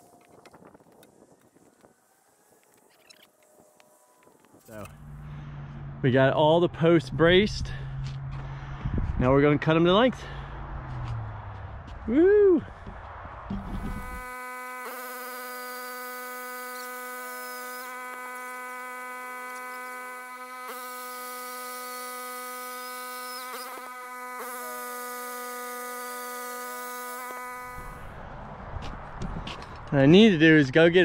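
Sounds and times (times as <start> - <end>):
droning chord: 13.5 - 28.2.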